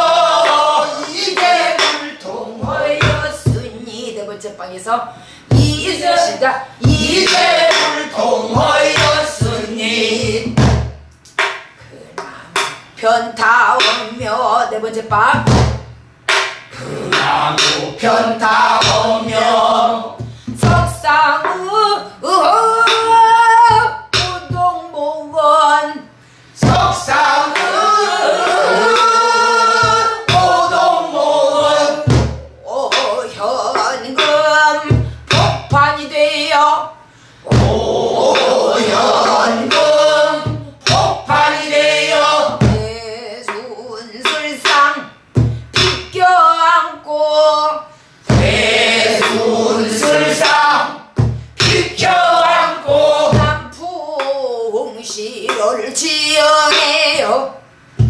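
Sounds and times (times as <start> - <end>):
woman singing: 0.0 - 10.6, 12.2 - 15.6, 20.5 - 30.8, 31.6 - 37.7, 39.6 - 47.9, 51.6 - 57.6
barrel drum struck with stick: 0.1 - 3.7, 5.5 - 12.9, 15.1 - 21.7, 26.6 - 33.1, 33.7 - 36.0, 37.5 - 43.6, 48.3 - 54.3.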